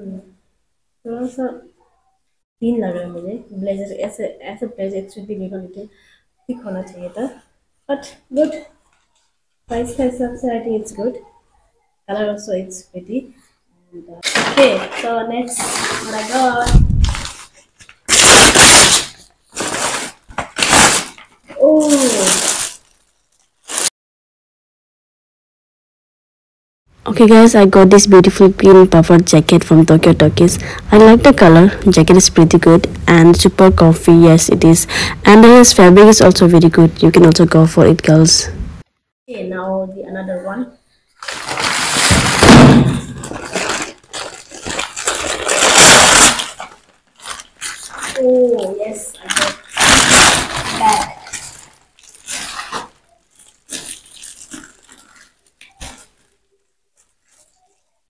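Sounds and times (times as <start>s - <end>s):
plastic wrapper crinkling: 14.2s - 23.9s, 41.2s - 58.0s
packaging tearing: 15.6s - 23.9s, 41.2s - 56.4s.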